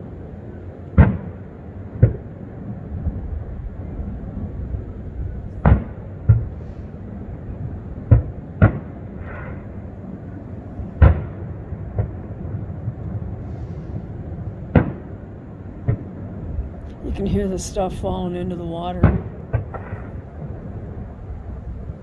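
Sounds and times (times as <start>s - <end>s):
low background rumble: 0.0s - 22.0s
firework shells booming: 5.5s - 7.0s, 8.0s - 9.8s, 10.9s - 12.7s, 13.4s - 16.4s, 18.9s - 21.5s.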